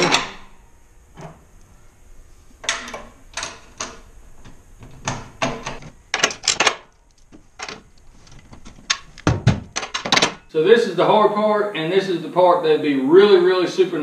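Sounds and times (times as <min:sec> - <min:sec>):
bolts clicking and knocking: 0:02.6 - 0:10.5.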